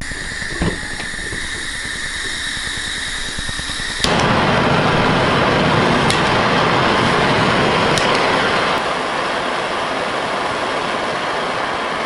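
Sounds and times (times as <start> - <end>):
gas hissing from blowtorch: 0.0 - 8.8
torch flame rushing: 0.0 - 12.0
igniter click: 6.0 - 6.3.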